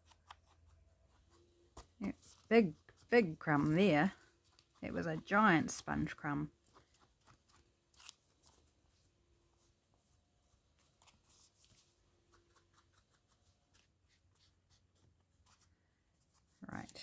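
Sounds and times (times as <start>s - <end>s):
sponge brushing paper: 11.0s - 15.6s.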